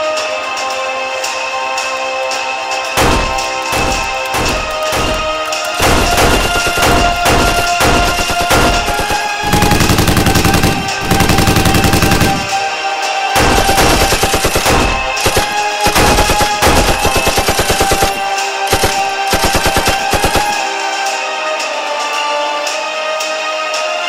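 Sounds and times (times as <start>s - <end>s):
background music: 0.0s - 24.0s
automatic gunfire bursts: 3.0s - 12.8s, 13.4s - 20.6s.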